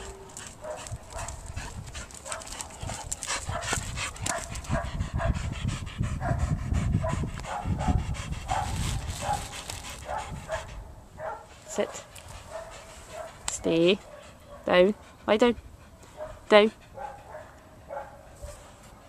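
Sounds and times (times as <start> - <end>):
dog panting: 0.0 - 19.0
dry leaves and twigs crackling: 8.6 - 10.1.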